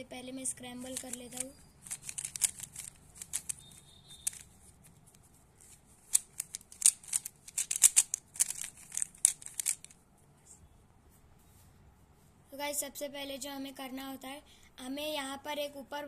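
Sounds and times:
puzzle cube clicking: 0:00.8 - 0:10.0.

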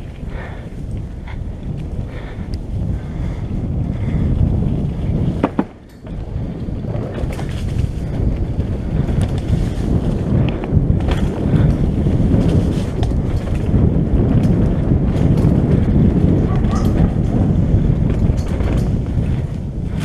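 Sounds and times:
wind buffeting microphone: 0:00.0 - 0:20.0
bike knocks and rattles: 0:04.2 - 0:20.0.

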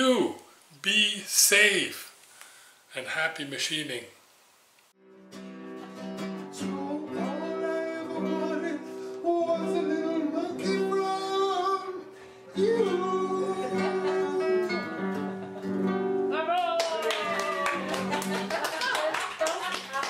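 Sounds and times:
acoustic guitar chords: 0:05.0 - 0:16.5, 0:17.8 - 0:18.5
person singing: 0:06.5 - 0:15.2.

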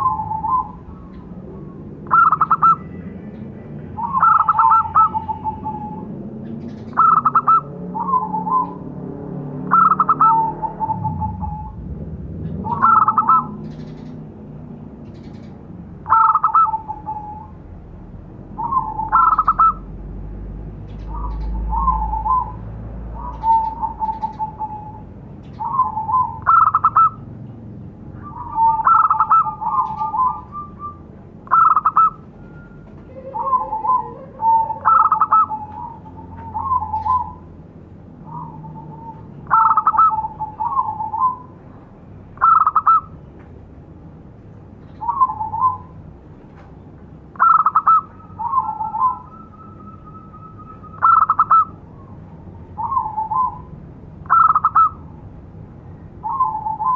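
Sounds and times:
dove cooing: 0:00.0 - 0:03.0, 0:04.0 - 0:08.8, 0:09.7 - 0:14.2, 0:15.1 - 0:17.6, 0:18.6 - 0:19.9, 0:20.9 - 0:27.3, 0:28.2 - 0:37.5, 0:38.2 - 0:41.6, 0:42.4 - 0:43.2, 0:45.0 - 0:46.0, 0:47.3 - 0:55.2, 0:56.2 - 0:56.9.

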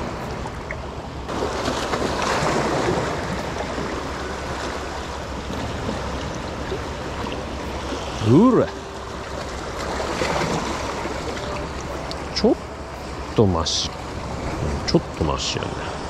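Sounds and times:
low wind rumble: 0:00.0 - 0:16.0.

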